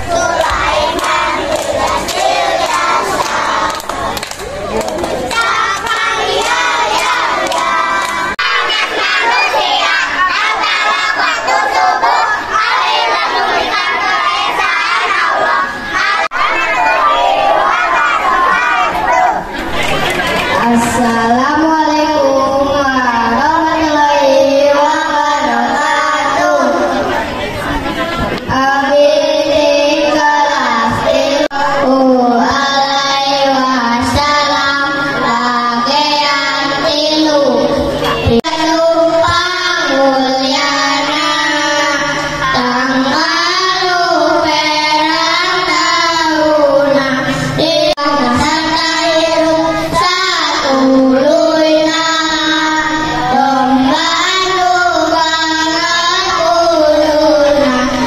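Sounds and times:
children singing into microphones: 0.0s - 58.0s.

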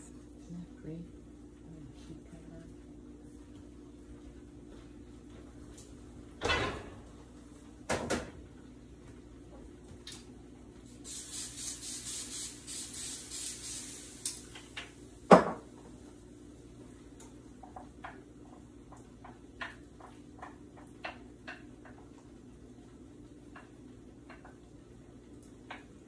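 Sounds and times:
knocks of kitchen items: 7.9s - 8.4s, 15.3s - 15.7s
aerosol spray hissing: 11.0s - 14.6s.

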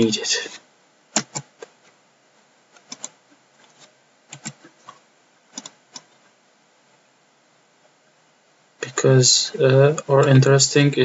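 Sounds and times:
mouse and keyboard clicks: 1.1s - 1.8s, 2.7s - 6.2s.

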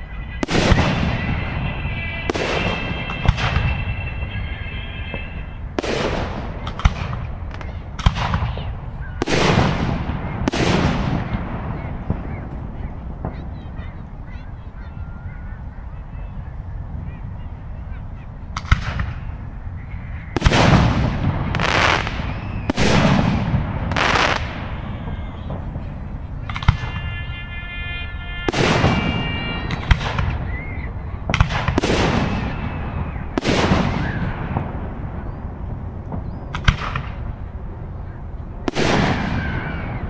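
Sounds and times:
held horn-like tone: 0.0s - 5.8s, 26.7s - 30.0s.

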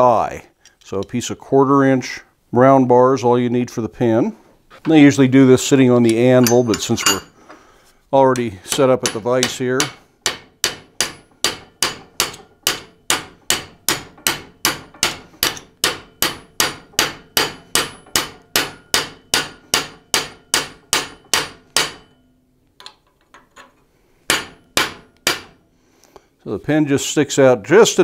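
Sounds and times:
hammer striking steel pin: 6.1s - 7.4s, 8.4s - 23.4s, 24.3s - 25.6s.

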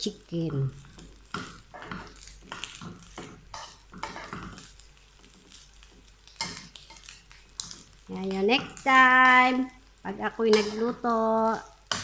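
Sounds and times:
food sizzling: 0.0s - 12.0s
metal spoon scraping frying pan: 0.9s - 4.8s, 6.4s - 7.9s.

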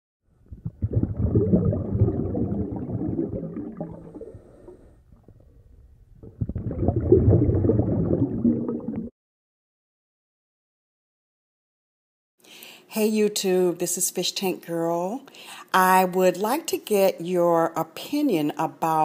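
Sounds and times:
water bubbling and gurgling: 0.4s - 9.1s.

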